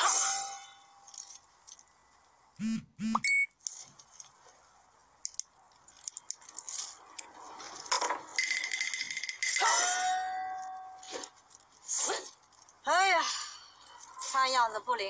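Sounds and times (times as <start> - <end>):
brief high beep: 2.6 - 3.5.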